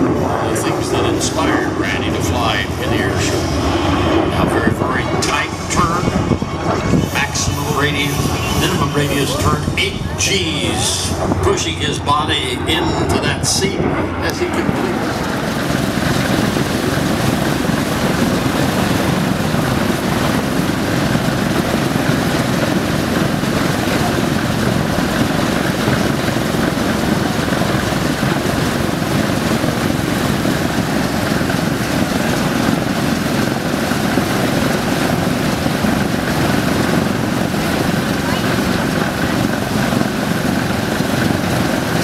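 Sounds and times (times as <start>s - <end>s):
propeller aircraft engines running: 0.0s - 42.0s.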